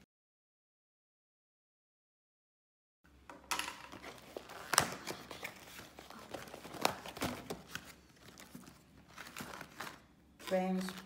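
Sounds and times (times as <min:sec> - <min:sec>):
cardboard box rustling and crinkling: 0:04.1 - 0:10.8.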